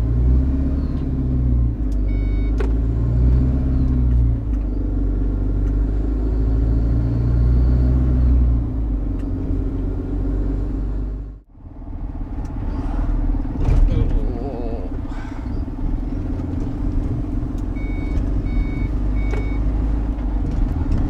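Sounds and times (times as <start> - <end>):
lorry diesel engine accelerating: 0.0 - 21.0.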